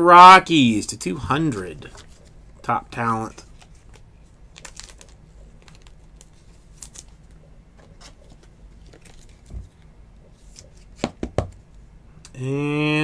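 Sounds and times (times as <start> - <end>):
plastic rustling: 1.8 - 11.1.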